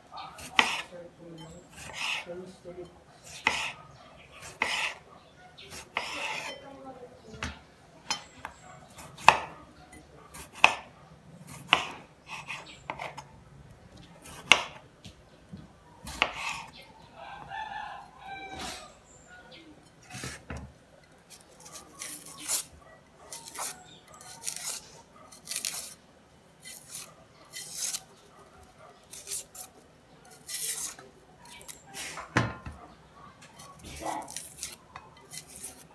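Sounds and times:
knife slicing on cutting board: 0:00.4 - 0:00.9, 0:01.8 - 0:02.3, 0:03.2 - 0:03.8, 0:04.4 - 0:05.0, 0:05.7 - 0:06.6, 0:23.3 - 0:26.0, 0:26.6 - 0:28.1, 0:29.1 - 0:31.7
rooster crowing: 0:17.1 - 0:19.6.

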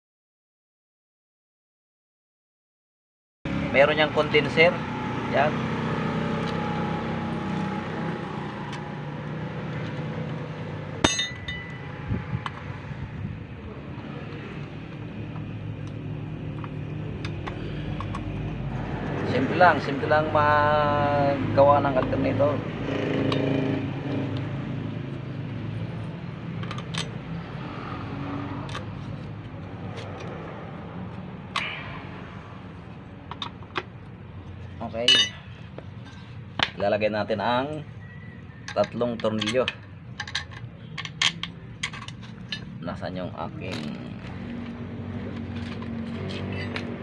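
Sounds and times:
metal tool clinking on metal: 0:11.0 - 0:11.9, 0:35.0 - 0:36.2.

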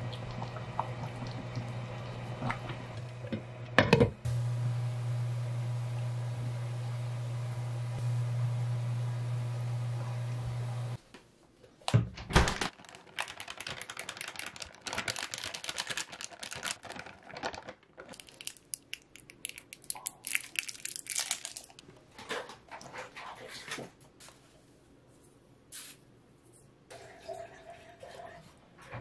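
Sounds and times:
plastic bag crinkling: 0:12.4 - 0:22.0.

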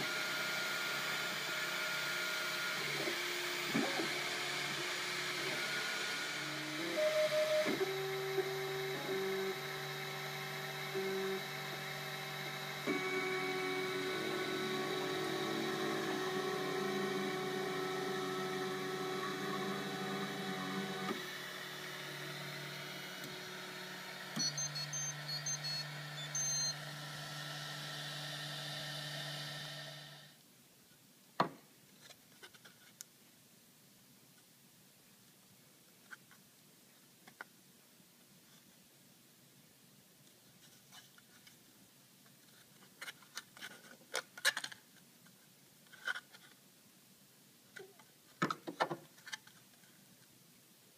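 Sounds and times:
stepper motors whining: 0:00.0 - 0:30.3.

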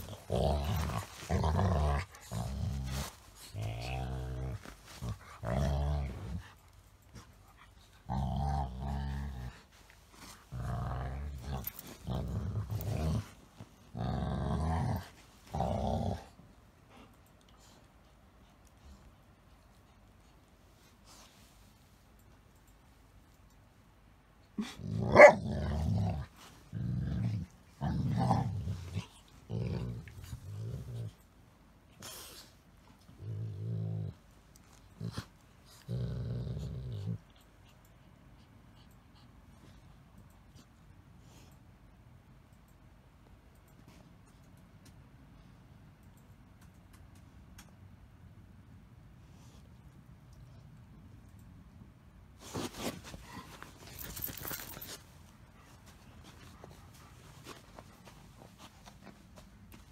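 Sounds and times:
dog growling: 0:00.0 - 0:06.5, 0:08.0 - 0:09.6, 0:10.5 - 0:16.4, 0:24.6 - 0:31.2, 0:33.1 - 0:34.2, 0:34.9 - 0:37.4.

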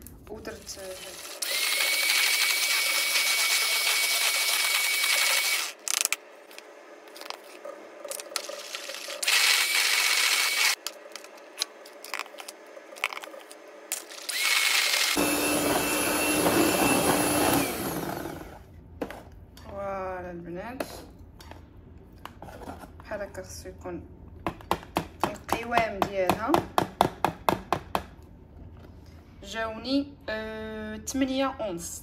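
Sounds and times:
electric hand mixer whining: 0:01.0 - 0:05.8, 0:08.7 - 0:10.8, 0:14.2 - 0:18.6.

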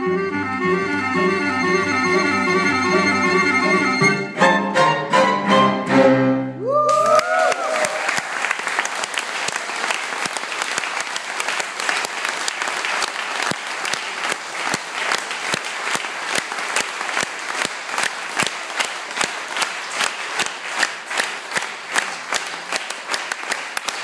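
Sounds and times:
audience applauding: 0:06.7 - 0:24.0
rhythmic clapping in unison: 0:07.4 - 0:24.0.

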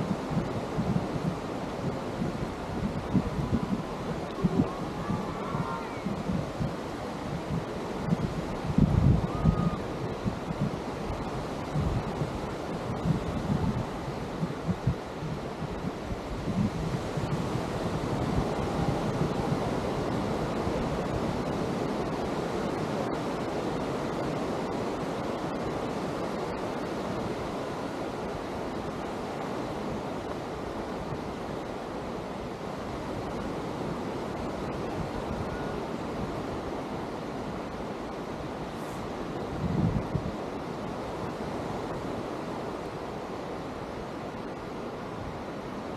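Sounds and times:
surf washing onto beach: 0:00.0 - 0:45.9
wind buffeting microphone: 0:00.0 - 0:45.9.

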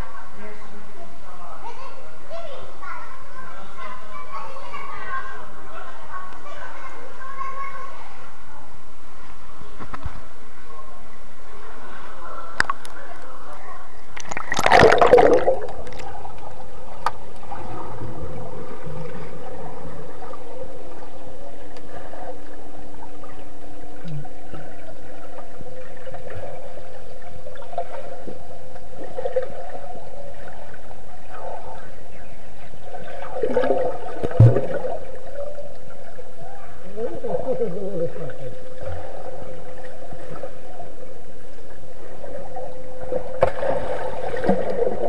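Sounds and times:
steady underwater hum: 0:00.0 - 0:45.0
bubbling and splashing: 0:14.0 - 0:45.0
water rushing underwater: 0:14.0 - 0:45.0.

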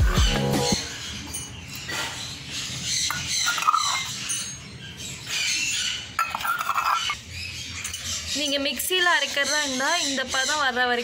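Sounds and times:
utensil scraping and stirring in pot: 0:06.1 - 0:07.2.

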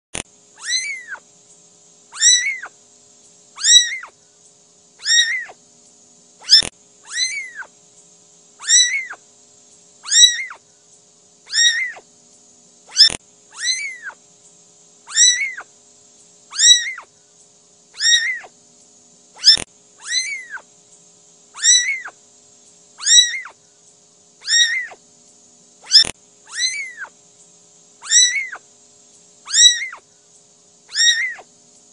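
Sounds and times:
kitten mewing: 0:00.6 - 0:01.2, 0:02.1 - 0:02.7, 0:03.6 - 0:04.2, 0:05.0 - 0:05.6, 0:06.4 - 0:07.7, 0:08.6 - 0:09.2, 0:10.0 - 0:10.6, 0:11.5 - 0:12.0, 0:12.9 - 0:14.2, 0:15.1 - 0:15.7, 0:16.5 - 0:17.1, 0:18.0 - 0:18.5, 0:19.4 - 0:20.6, 0:21.6 - 0:22.2, 0:23.0 - 0:23.6, 0:24.4 - 0:25.0, 0:25.9 - 0:27.1, 0:28.0 - 0:28.6, 0:29.5 - 0:30.0, 0:30.9 - 0:31.5
sharp click: 0:06.5 - 0:06.7, 0:19.4 - 0:19.7.

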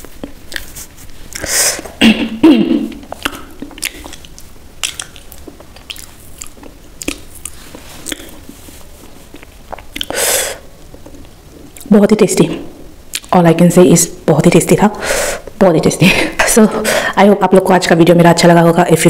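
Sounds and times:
wet mouth smacks: 0:02.9 - 0:08.4, 0:09.3 - 0:10.2, 0:13.1 - 0:13.3
chewing and licking fingers: 0:03.1 - 0:08.6.

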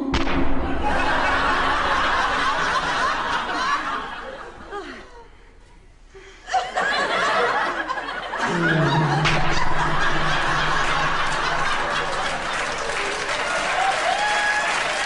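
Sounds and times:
audience laughing: 0:00.6 - 0:05.4, 0:06.5 - 0:15.0
applause: 0:10.8 - 0:15.0.

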